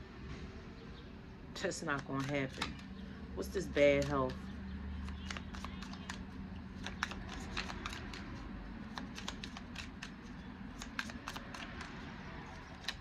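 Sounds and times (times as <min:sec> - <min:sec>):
cards being shuffled by hand: 0:01.8 - 0:03.0, 0:03.8 - 0:13.0.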